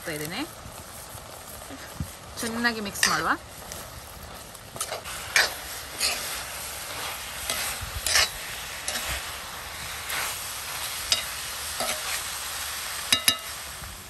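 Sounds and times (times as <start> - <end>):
frying sizzle: 0.0 - 14.0
metal spoon scraping iron pan: 3.0 - 3.3, 4.8 - 6.3, 7.4 - 9.2, 11.1 - 12.2.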